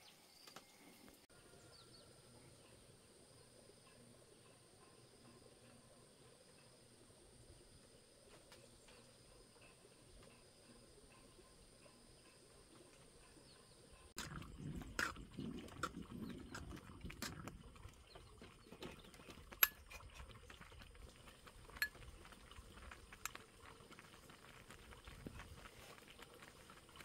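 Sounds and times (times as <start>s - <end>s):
ladle stirring porridge: 8.3s - 27.0s
metal clinking on pot: 18.8s - 20.8s, 21.6s - 23.4s.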